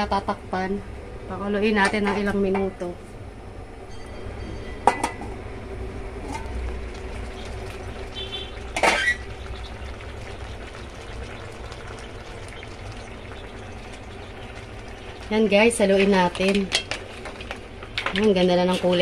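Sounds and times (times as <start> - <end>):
food bubbling: 4.3 - 19.0.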